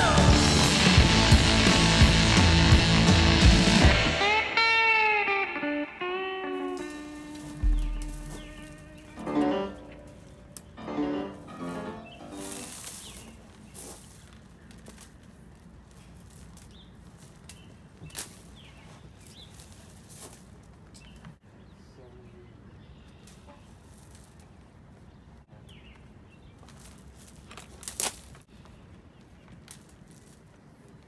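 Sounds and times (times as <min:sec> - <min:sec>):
bird chirps: 0:07.5 - 0:09.2
sharp knocks: 0:07.6 - 0:09.2
cord dragging over gravel: 0:12.3 - 0:17.3.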